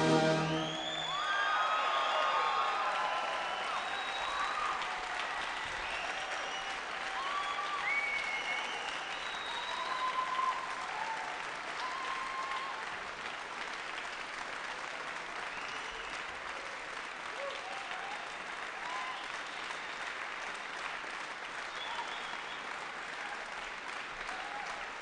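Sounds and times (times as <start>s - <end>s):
audience applauding: 0.0s - 25.0s
cheers and whistles: 0.2s - 12.9s, 15.4s - 16.3s, 17.3s - 20.1s, 21.6s - 23.4s, 24.2s - 24.9s.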